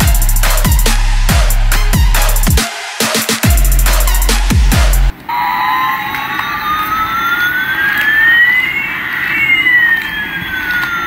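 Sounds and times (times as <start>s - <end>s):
toy airplane electronic whine: 5.3s - 11.0s.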